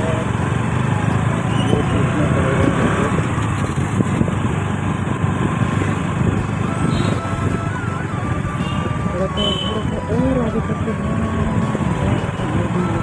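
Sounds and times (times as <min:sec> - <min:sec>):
motorcycle engine droning: 0:00.0 - 0:13.0
road noise: 0:00.0 - 0:13.0
wind noise: 0:01.6 - 0:09.1.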